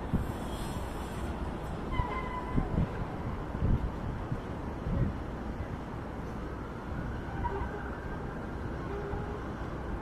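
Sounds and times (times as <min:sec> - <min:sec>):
wind buffeting microphone: 0:00.0 - 0:06.0
steady outdoor hiss: 0:00.0 - 0:10.0.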